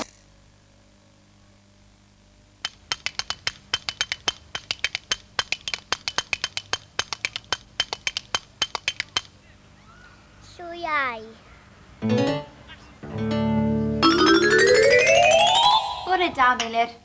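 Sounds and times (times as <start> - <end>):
spoons clicking rhythmically: 2.6 - 9.4.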